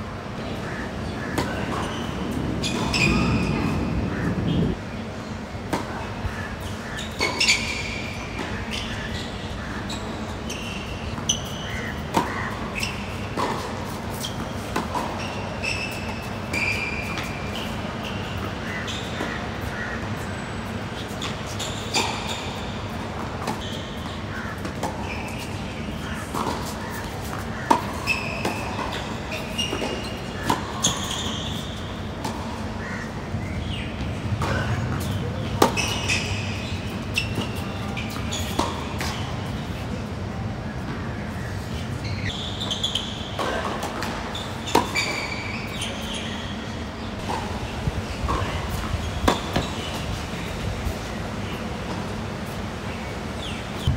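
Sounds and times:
shoes squeaking on court: 1.0s - 4.8s, 5.7s - 33.0s, 33.6s - 39.9s, 40.8s - 53.9s
tennis ball hitting racket and court: 1.3s - 4.6s, 5.7s - 9.1s, 9.9s - 20.3s, 21.0s - 32.8s, 33.6s - 39.9s, 40.8s - 53.9s
tennis ball bounces: 12.1s - 15.3s, 47.1s - 50.2s.

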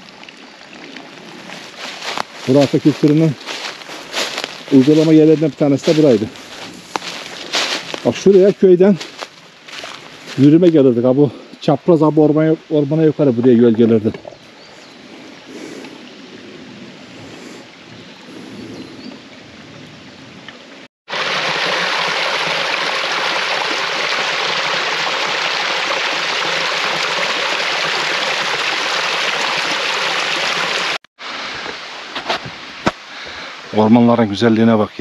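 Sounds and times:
stream splashing over rocks: 0.0s - 11.0s, 21.1s - 34.1s.

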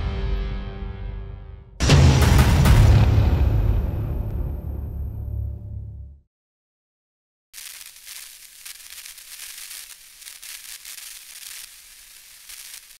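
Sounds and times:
crackling hiss: 7.6s - 13.0s.

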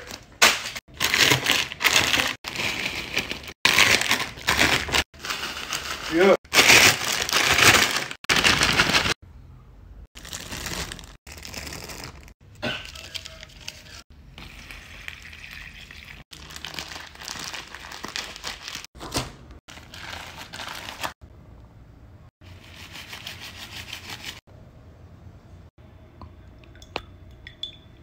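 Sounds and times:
plastic bag crinkling: 0.9s - 9.2s, 10.2s - 14.0s, 16.3s - 18.9s.

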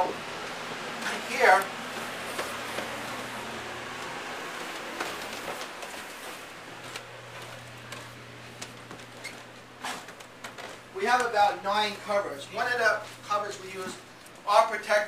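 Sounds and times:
heaters and fans humming: 0.0s - 15.0s
footsteps and handling knocks: 1.9s - 11.4s.

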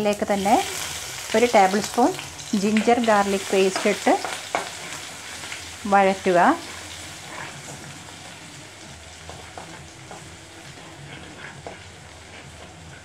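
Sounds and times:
paste sizzling in hot oil: 0.0s - 13.0s
spatula scraping a pan: 3.0s - 8.2s, 9.2s - 13.0s.

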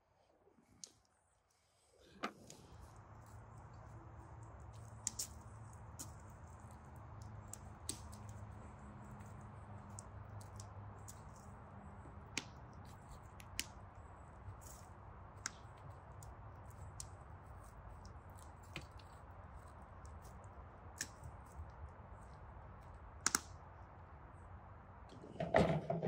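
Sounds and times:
sharp clicks and snaps: 3.7s - 11.6s, 14.6s - 23.9s.

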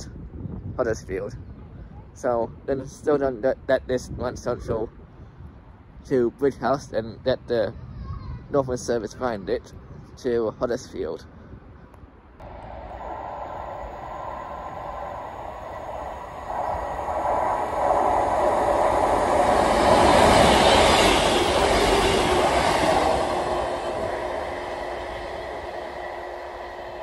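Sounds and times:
diesel train passing: 12.4s - 27.0s
train wheel noise: 12.4s - 27.0s.

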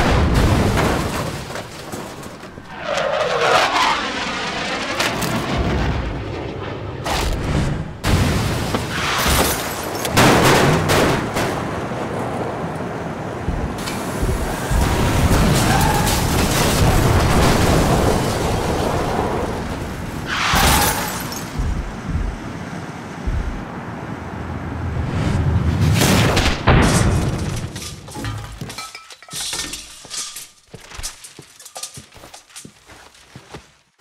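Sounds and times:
boom and crash effects: 13.4s - 22.6s, 23.2s - 23.7s, 25.4s - 27.7s.

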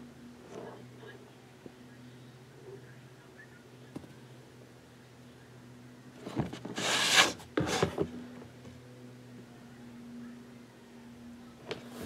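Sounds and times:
steady low hum: 0.0s - 12.0s
wood scraping on plastic tray: 6.3s - 8.1s.

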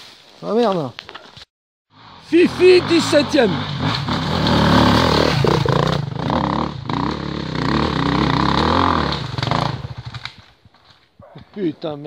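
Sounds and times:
dirt bike engine revving: 1.9s - 10.4s.

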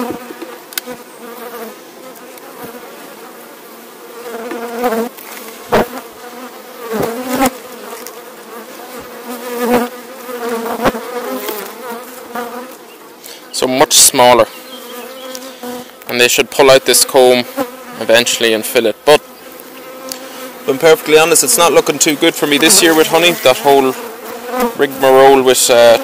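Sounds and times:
hive tool knocking and scraping: 0.0s - 1.0s, 4.3s - 6.0s
honeybees buzzing: 0.0s - 26.0s.

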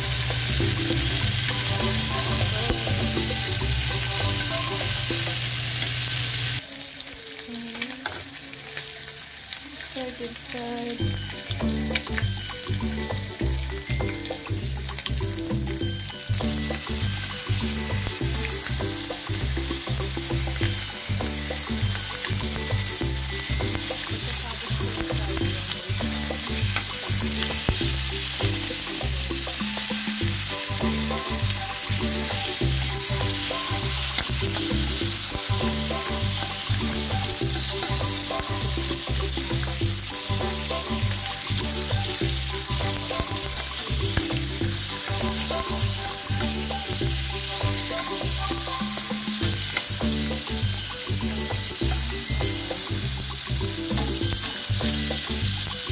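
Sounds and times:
background music: 0.0s - 55.9s
bacon sizzling in a wok: 0.0s - 55.9s.

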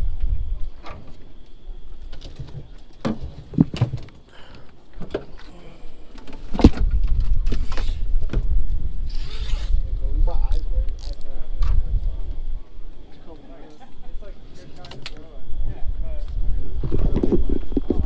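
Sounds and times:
wind rumbling on microphone: 0.0s - 4.1s, 6.4s - 13.0s, 15.4s - 18.0s.

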